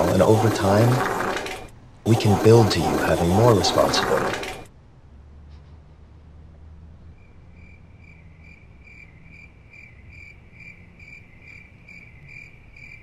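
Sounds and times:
cricket chirping: 0:07.1 - 0:13.0.

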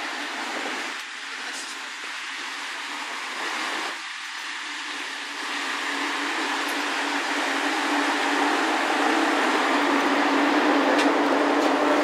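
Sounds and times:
train diesel engine idling: 0:00.0 - 0:12.0.

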